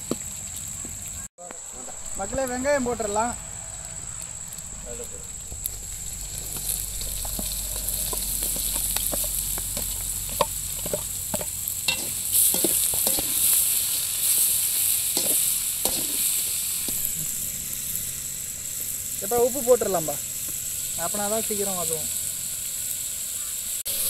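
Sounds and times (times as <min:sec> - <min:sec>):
onions sizzling in hot oil: 0:00.0 - 0:24.0
ladle scraping and clinking: 0:06.3 - 0:17.2.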